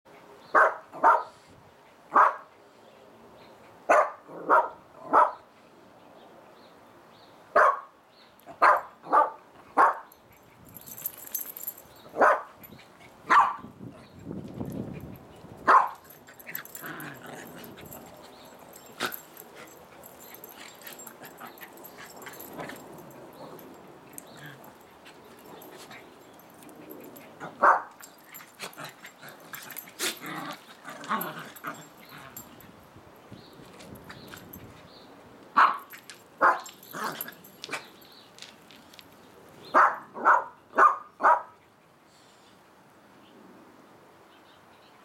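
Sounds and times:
dogs barking: 0.6s - 1.4s, 2.1s - 2.5s, 3.9s - 5.4s, 7.6s - 7.9s, 8.5s - 10.1s, 12.1s - 12.6s, 13.3s - 13.6s, 15.6s - 32.4s, 35.6s - 37.9s, 39.7s - 41.5s.

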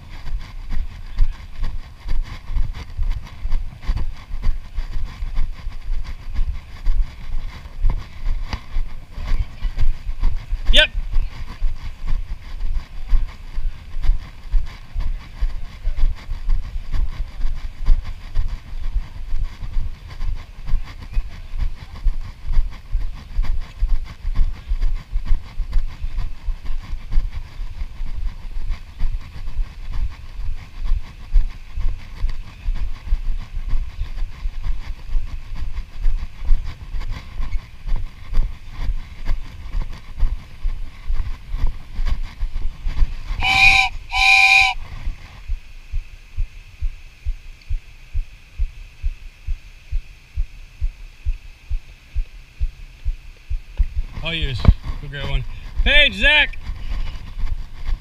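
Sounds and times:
rhythmic low thumping: 0.0s - 58.0s
high-pitched blasts: 43.4s - 44.8s.

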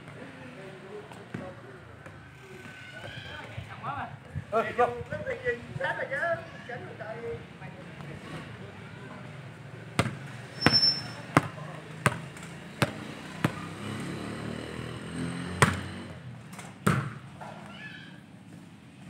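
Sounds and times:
distant murmur of voices: 0.0s - 16.4s
football being kicked: 10.0s - 12.2s, 16.8s - 17.2s.

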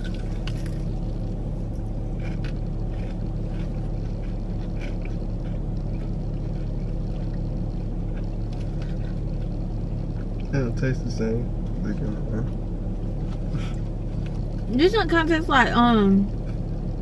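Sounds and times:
chewing sounds: 0.0s - 10.6s, 12.5s - 14.7s, 16.3s - 17.0s
car engine idling: 0.0s - 17.0s.

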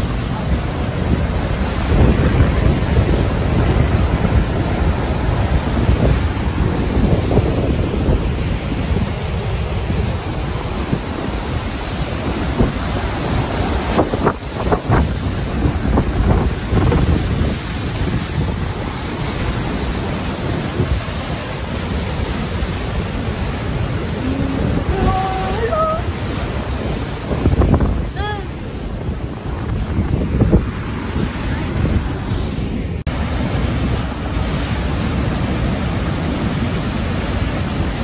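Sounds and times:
waterfall rushing: 0.0s - 38.0s
wind buffeting microphone: 0.0s - 38.0s.

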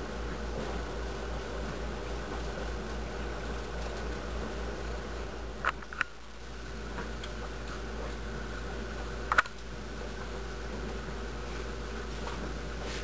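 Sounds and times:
low hum and hiss: 0.0s - 13.0s
sharp clicks: 9.3s - 9.6s.

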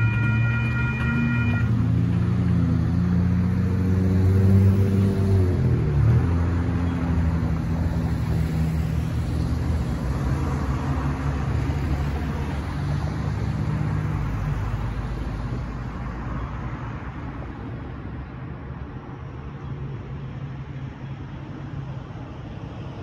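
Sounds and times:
cars driving over railroad crossing: 0.0s - 16.2s.

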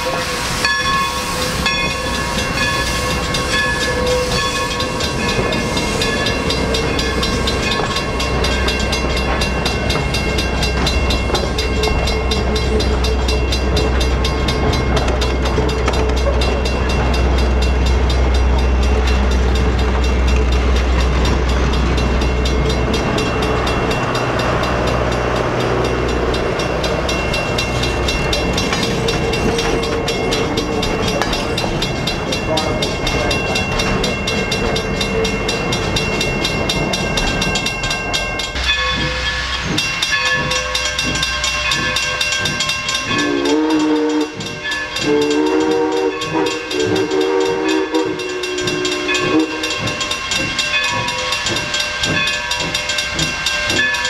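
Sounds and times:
steam train rumbling past: 0.0s - 54.0s.

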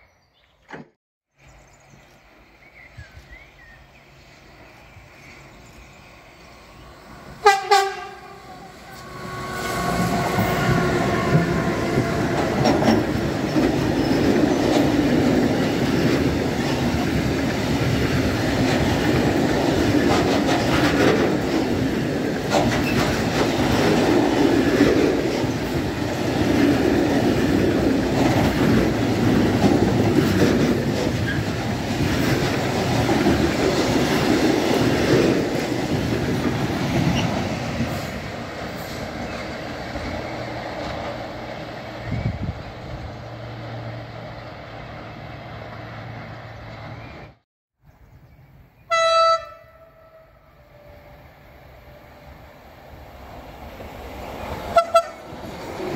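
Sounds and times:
freight train wheels rumbling: 2.2s - 47.4s, 48.9s - 55.9s
locomotive horn blast: 7.4s - 13.0s, 48.9s - 51.3s, 54.7s - 55.4s
clickety-clack over rail joints: 8.9s - 43.1s.

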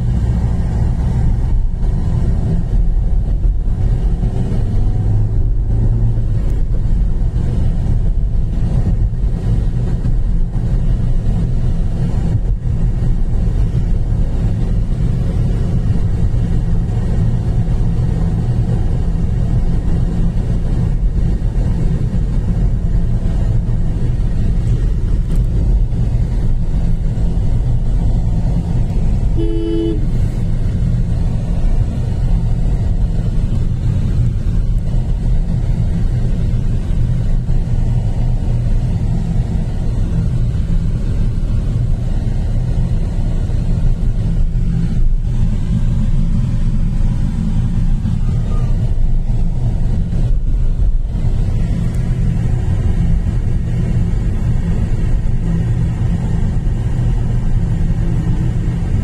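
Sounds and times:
road vehicle rumbling: 0.0s - 59.0s
two-tone horn toot: 29.3s - 30.2s.

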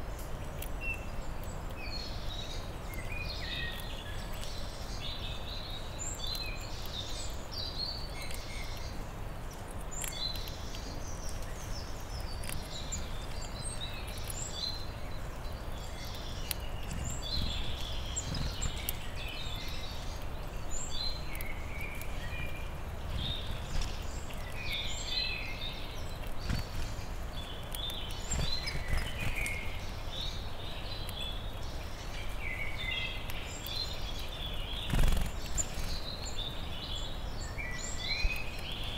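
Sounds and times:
songbirds singing: 0.0s - 38.9s
squirrel nibbling seed clicks: 0.1s - 5.0s, 8.1s - 30.2s.

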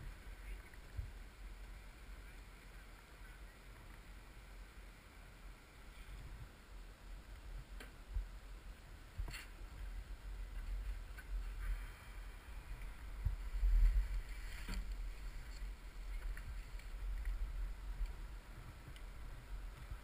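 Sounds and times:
wind rumble on microphone: 0.0s - 20.0s.

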